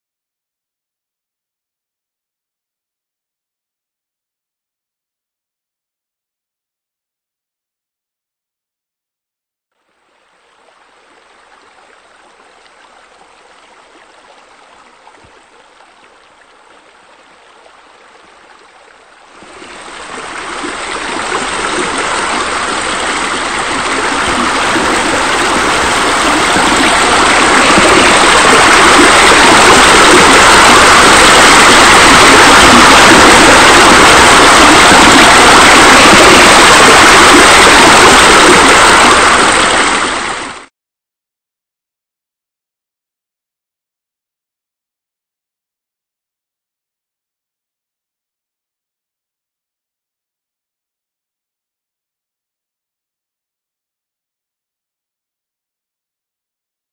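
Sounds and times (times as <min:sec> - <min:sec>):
water pouring into pool: 0:10.0 - 0:40.7.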